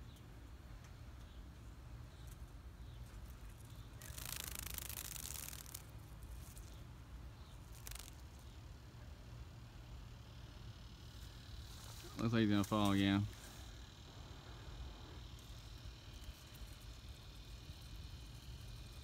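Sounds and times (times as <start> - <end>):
leaves rustling: 2.2 - 8.8, 11.1 - 19.0
low steady rumble: 5.2 - 19.0.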